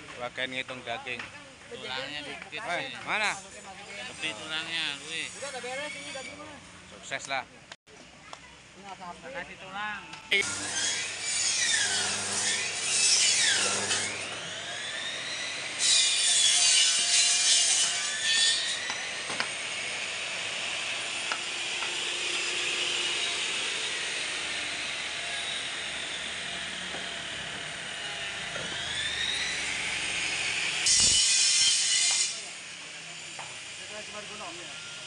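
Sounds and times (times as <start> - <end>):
bone saw cutting meat and bone: 10.4 - 23.4.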